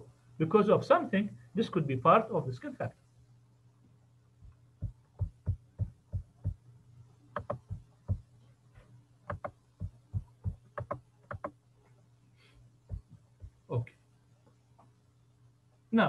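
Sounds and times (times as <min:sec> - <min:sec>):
steady low hum: 0:00.0 - 0:16.0
soft knocks and taps: 0:04.4 - 0:06.6, 0:07.4 - 0:11.6, 0:12.9 - 0:13.6.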